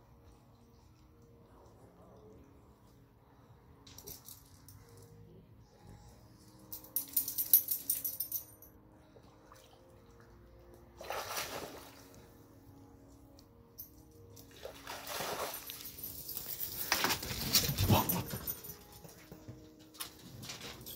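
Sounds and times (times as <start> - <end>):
dog splashing in mud: 14.6 - 15.8.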